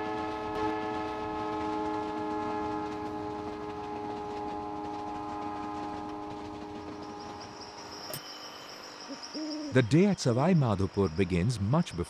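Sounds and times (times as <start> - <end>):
train horn chord: 0.0 - 7.5
train running: 0.0 - 12.0.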